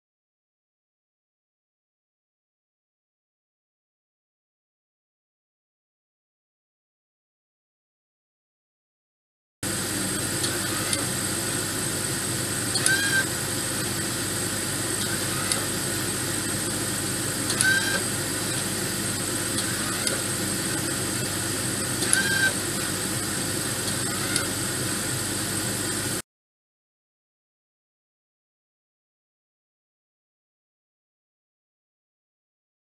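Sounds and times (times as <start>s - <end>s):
steady mechanical hum: 9.6s - 26.2s
small gear motor whirring: 10.1s - 11.2s, 12.6s - 13.3s, 14.7s - 16.6s, 17.3s - 23.0s, 23.8s - 25.0s.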